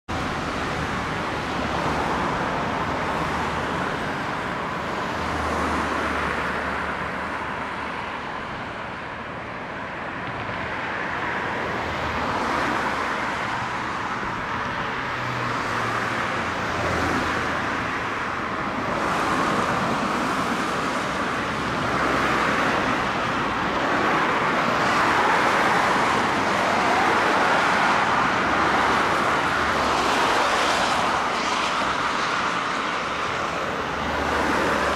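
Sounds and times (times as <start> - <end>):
road traffic passing: 0.1 - 34.9.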